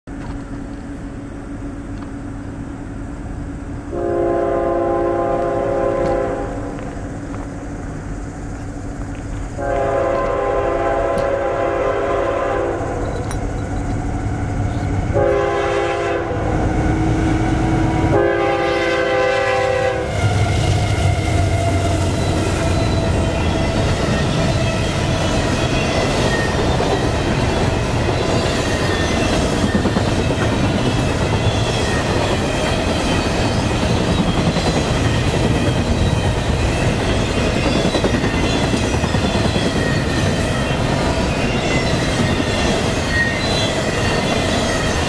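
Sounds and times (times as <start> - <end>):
train rumbling: 0.0 - 45.0
train air horn blasts: 3.9 - 6.8, 9.6 - 13.0, 15.1 - 25.6.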